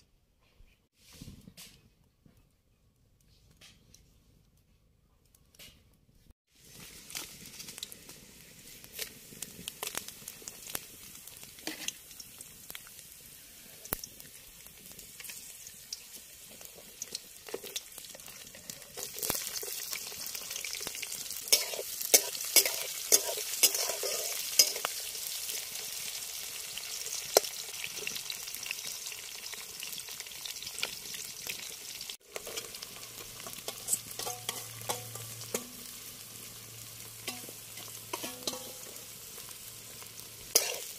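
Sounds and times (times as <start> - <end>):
food sizzling in hot oil: 6.5 - 40.9
spatula scraping in pan: 11.6 - 12.1, 17.5 - 25.6, 32.2 - 40.9.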